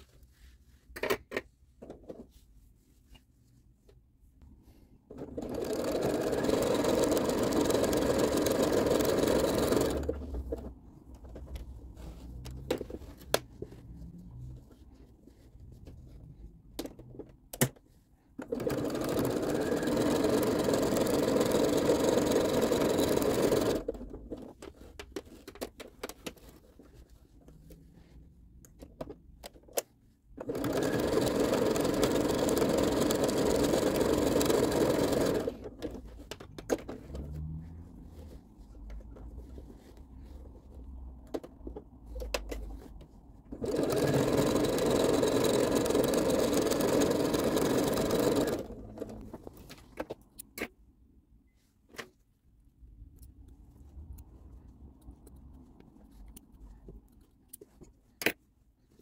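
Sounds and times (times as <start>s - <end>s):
sewing machine stitching: 5.1s - 10.7s, 18.4s - 24.1s, 30.4s - 36.0s, 43.5s - 49.3s
handling noise with clicks: 49.0s - 51.0s, 51.8s - 59.0s.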